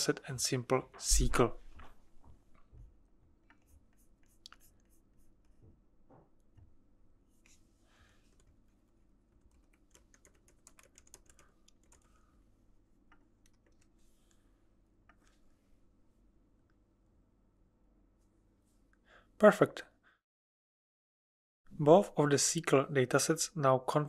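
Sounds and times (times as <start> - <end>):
computer keyboard typing: 9.4 - 12.1, 13.1 - 13.9.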